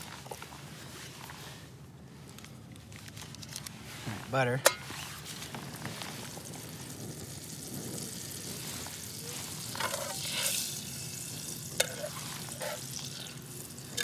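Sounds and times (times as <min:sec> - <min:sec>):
butter sizzling in a pan: 0:06.3 - 0:14.0.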